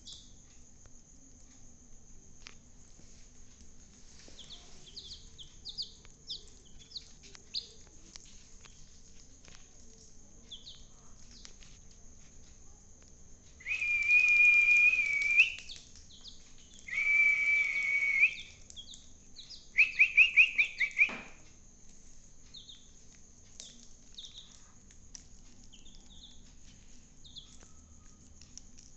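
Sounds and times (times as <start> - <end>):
chicks peeping: 4.1 - 11.7, 13.8 - 21.2, 22.5 - 26.6, 27.2 - 28.9
loud high whistles: 13.6 - 15.8, 16.9 - 18.6, 19.8 - 21.3.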